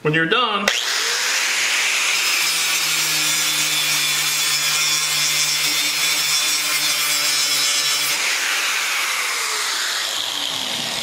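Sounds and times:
angle grinder grinding steel: 0:00.7 - 0:11.0.

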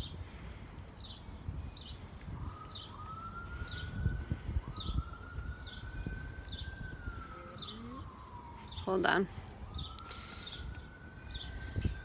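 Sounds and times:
siren wailing: 0:02.0 - 0:12.0
bird chirping: 0:04.8 - 0:08.9, 0:09.7 - 0:12.0.

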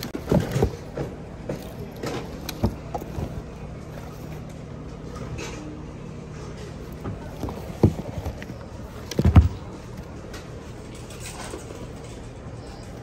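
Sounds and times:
shoes and bags rustling: 0:00.0 - 0:04.5, 0:06.7 - 0:10.2
steady low hum: 0:00.0 - 0:13.0.

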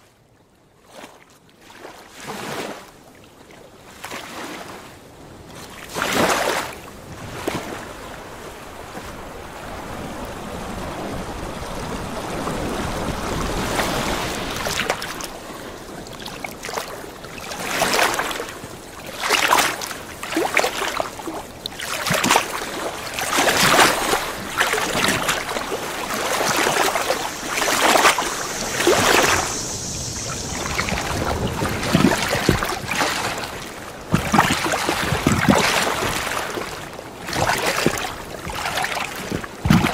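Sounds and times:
water surging and splashing: 0:05.2 - 0:39.9.

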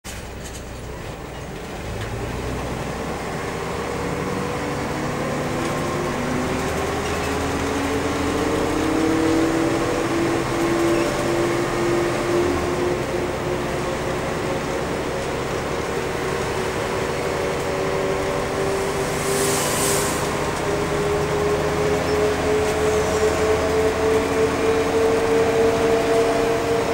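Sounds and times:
bus engine rumble: 0:00.1 - 0:26.9
transmission whine: 0:14.7 - 0:26.9.

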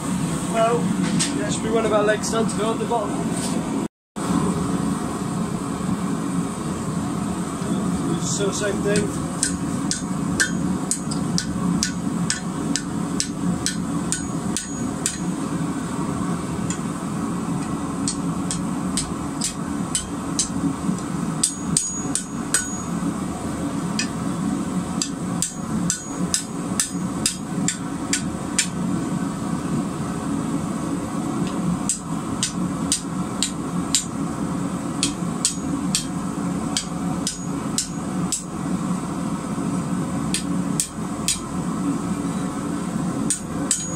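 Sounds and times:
low hum: 0:03.0 - 0:43.9
hammer striking metal on anvil: 0:09.0 - 0:15.4, 0:17.6 - 0:20.6, 0:21.4 - 0:23.0, 0:24.0 - 0:24.2, 0:25.0 - 0:28.8, 0:31.9 - 0:34.2, 0:35.0 - 0:38.5, 0:40.3 - 0:41.5, 0:43.3 - 0:43.9.

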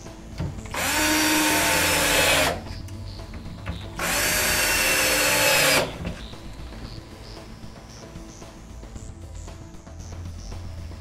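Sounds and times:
cordless drill motor: 0:00.7 - 0:02.7, 0:04.0 - 0:06.1.

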